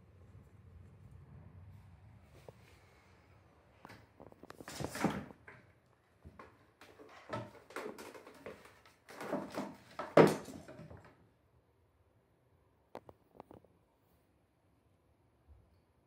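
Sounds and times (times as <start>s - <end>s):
cats scuffling on cat tree: 3.9s - 11.1s.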